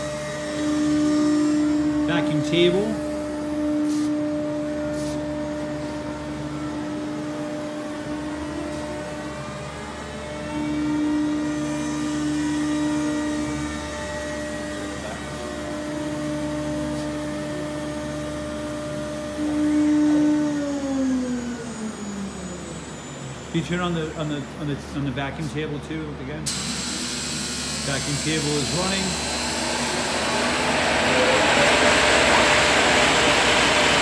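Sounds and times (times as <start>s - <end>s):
router spindle whine: 0.0s - 25.1s, 26.1s - 34.0s
vacuum pump noise: 26.4s - 34.0s.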